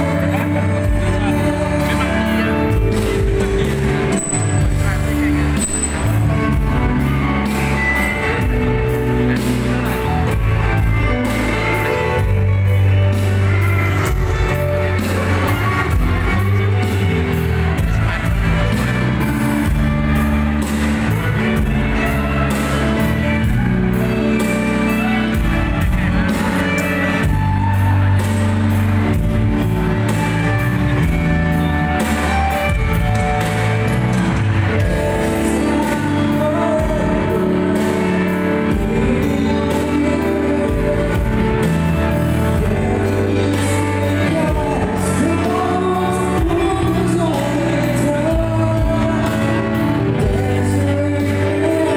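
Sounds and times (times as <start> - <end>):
man singing: 0.0 - 20.7, 34.6 - 51.9
live band playing: 0.0 - 51.9.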